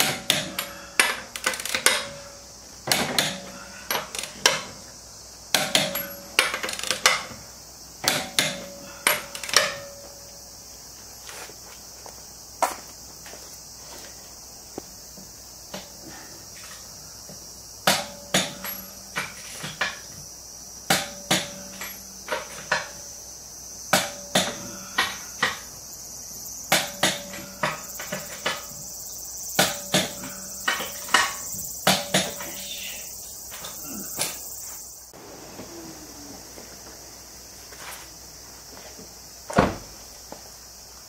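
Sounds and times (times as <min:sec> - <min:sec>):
insects buzzing: 0:00.0 - 0:41.0
metal knocks and clanks: 0:20.9 - 0:23.1, 0:23.9 - 0:25.7, 0:26.7 - 0:28.9, 0:29.6 - 0:32.7.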